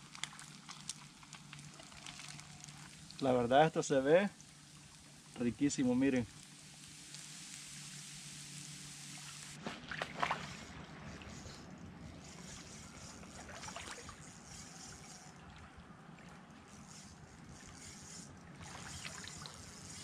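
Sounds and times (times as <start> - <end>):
low hum: 0.0 - 20.0
water lapping at shore: 9.1 - 20.0.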